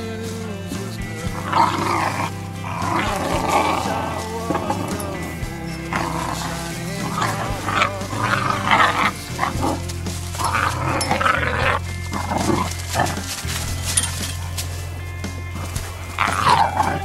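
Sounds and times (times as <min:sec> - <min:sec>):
background music with low bass: 0:00.0 - 0:17.0
puppies vocalizing: 0:01.0 - 0:17.0.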